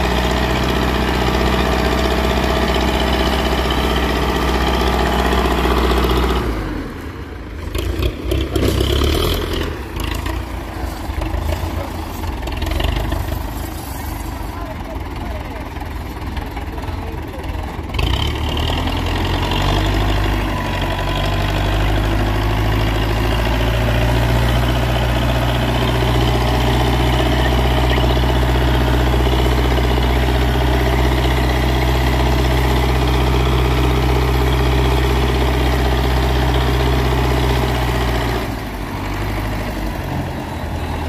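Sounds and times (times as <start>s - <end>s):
tractor diesel engine running: 0.0s - 41.0s.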